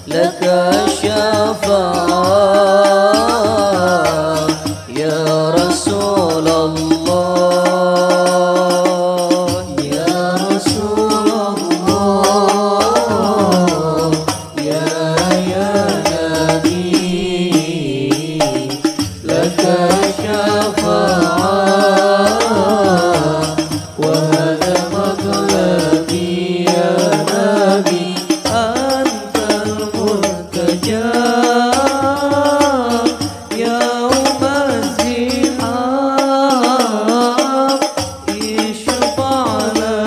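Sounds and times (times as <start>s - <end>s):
person singing chant-like song: 0.0s - 40.0s.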